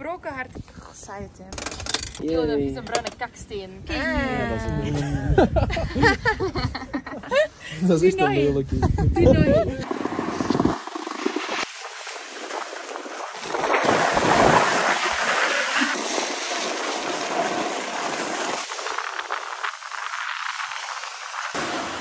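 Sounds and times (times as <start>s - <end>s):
snowboard scraping over snow: 9.4s - 22.0s.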